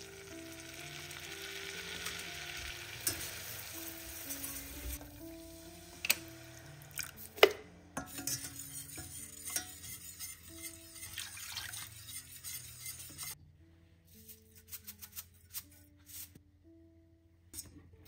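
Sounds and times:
soft background music: 0:00.0 - 0:18.0
wire whisk clinking in saucepan: 0:08.0 - 0:13.4.

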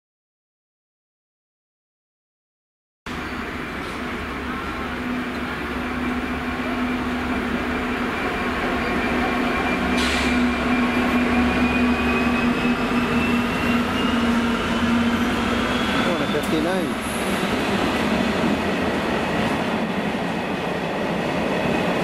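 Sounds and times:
diesel locomotive engines droning: 0:03.1 - 0:22.0
short hiss: 0:10.0 - 0:10.4.

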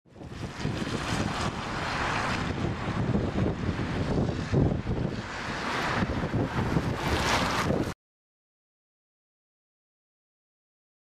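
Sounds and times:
heavy surf rushing: 0:00.1 - 0:08.0
wind buffeting microphone: 0:00.1 - 0:08.0.

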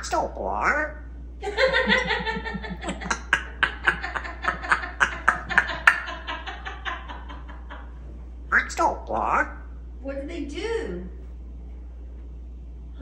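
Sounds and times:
rapid laughing: 0:01.4 - 0:08.7.

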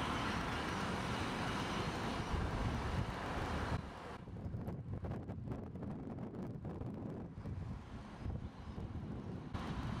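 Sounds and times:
wind buffeting microphone: 0:02.2 - 0:10.0.

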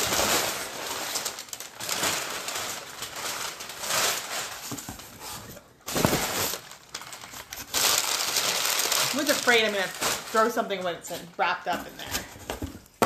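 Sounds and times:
packing paper crinkling: 0:00.0 - 0:13.0.

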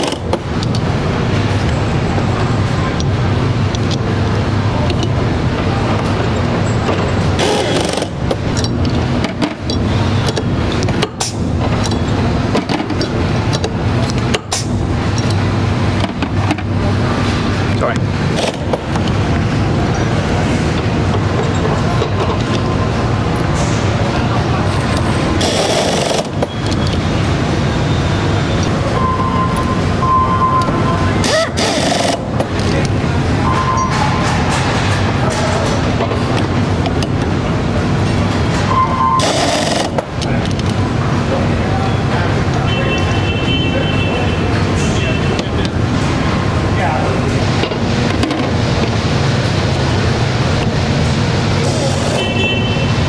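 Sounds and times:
factory machinery humming: 0:00.0 - 0:53.0
clicks of tools and parts: 0:06.8 - 0:16.7.

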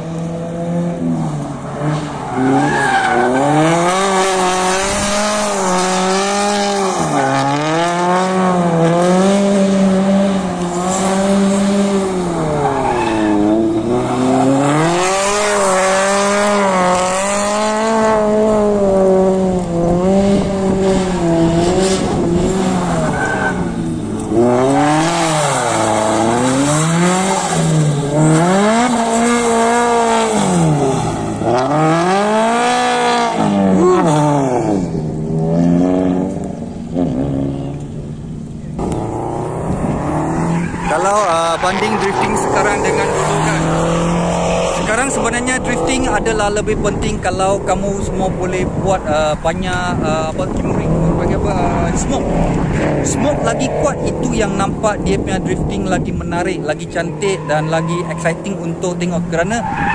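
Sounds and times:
car engine revving: 0:00.0 - 0:59.9
tyres squealing and sliding: 0:02.0 - 0:04.8, 0:22.8 - 0:23.8.

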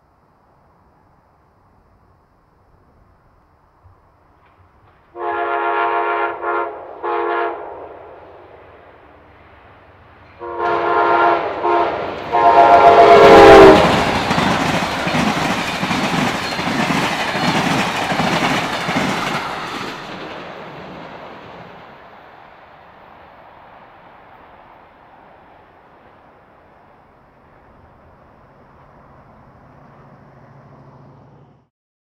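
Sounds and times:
train wheels clattering on rails: 0:04.3 - 0:05.2, 0:10.1 - 0:23.1
train air horn blasts: 0:05.1 - 0:08.1, 0:10.4 - 0:14.6.

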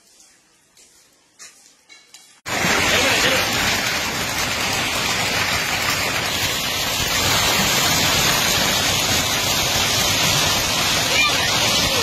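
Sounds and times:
hail and rain pelting: 0:02.5 - 0:12.0.

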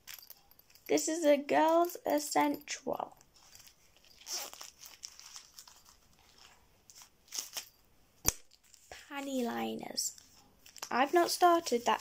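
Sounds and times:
plastic wrapping crinkling: 0:03.4 - 0:07.8, 0:08.4 - 0:12.0.

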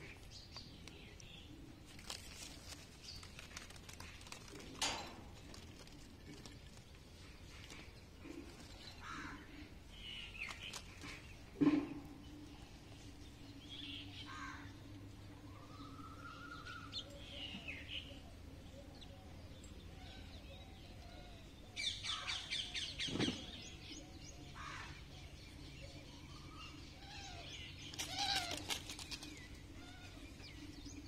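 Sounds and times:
low steady hum: 0:00.0 - 0:31.0
faint bird chirps: 0:13.2 - 0:21.5.

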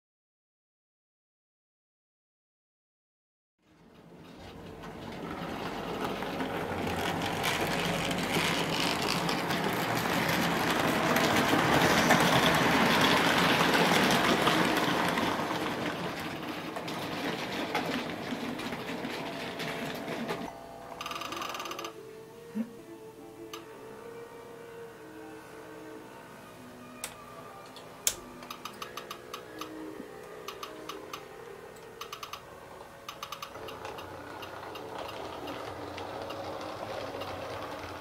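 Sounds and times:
model train rattling past: 0:03.7 - 0:22.0, 0:26.7 - 0:38.0.

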